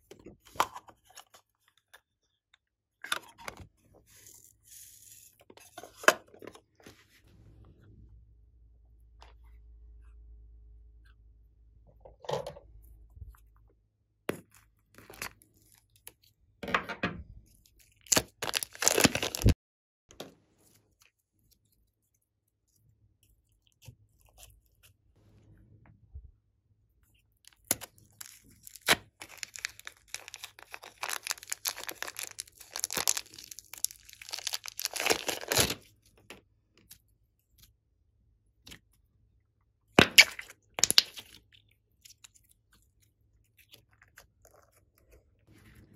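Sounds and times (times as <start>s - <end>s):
slime squishing: 17.5s - 19.6s, 27.0s - 36.0s.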